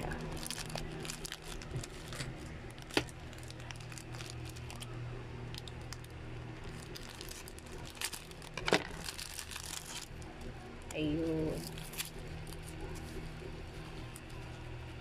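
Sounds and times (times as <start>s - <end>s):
low steady hum: 0.0s - 15.0s
plastic bag crinkling: 0.0s - 15.0s.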